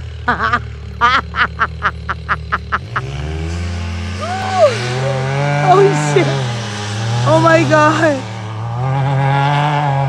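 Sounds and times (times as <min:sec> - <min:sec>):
utv engine revving: 0:00.0 - 0:10.0
short laugh-like bursts: 0:00.3 - 0:03.1.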